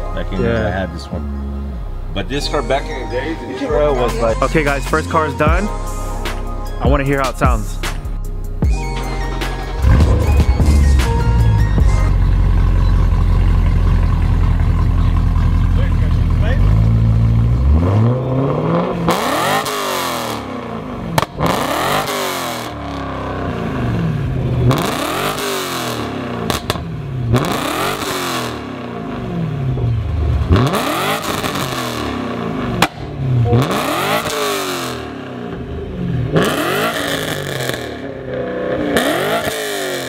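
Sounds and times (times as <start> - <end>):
car engine free-revving: 12.1 - 40.0.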